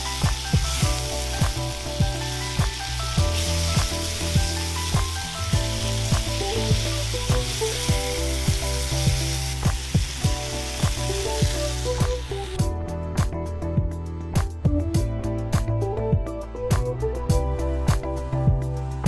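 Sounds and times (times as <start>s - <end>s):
beef sizzling in pan: 0.0s - 12.6s
background music with beat: 0.0s - 19.0s.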